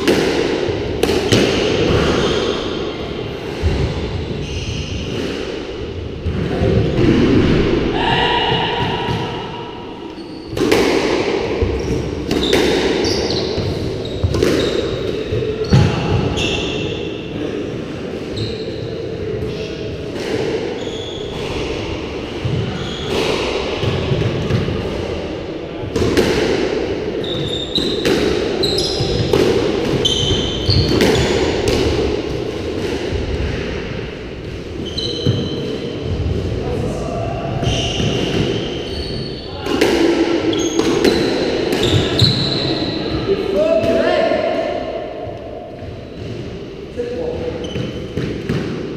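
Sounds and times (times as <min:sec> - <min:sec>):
squash ball hitting racket and walls: 0:00.0 - 0:48.9
sneakers squeaking on wooden floor: 0:04.2 - 0:05.1, 0:10.0 - 0:10.7, 0:11.6 - 0:17.0, 0:18.3 - 0:19.0, 0:20.8 - 0:21.6, 0:22.4 - 0:23.2, 0:27.2 - 0:31.5, 0:34.7 - 0:36.3, 0:37.6 - 0:39.6, 0:40.4 - 0:43.3, 0:47.4 - 0:48.6.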